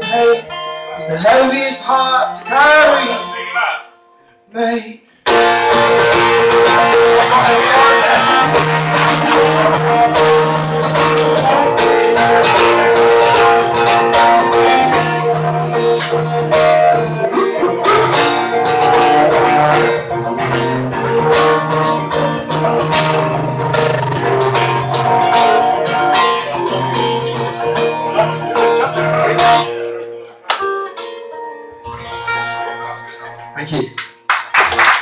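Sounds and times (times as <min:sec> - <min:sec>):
acoustic guitar strumming: 0:00.0 - 0:04.4, 0:05.2 - 0:34.3.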